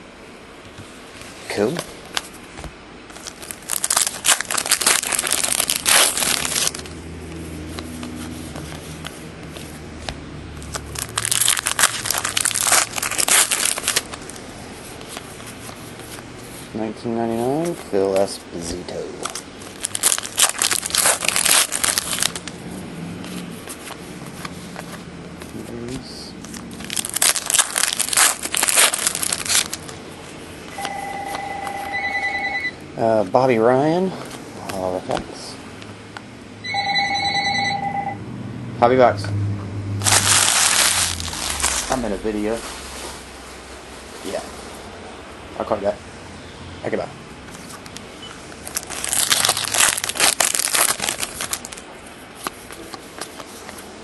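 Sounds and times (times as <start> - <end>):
steady low hum: 0.0 - 54.0
plastic crinkling: 3.1 - 30.8, 40.0 - 43.3, 47.5 - 53.9
phone ringing: 30.7 - 32.8, 36.6 - 38.2.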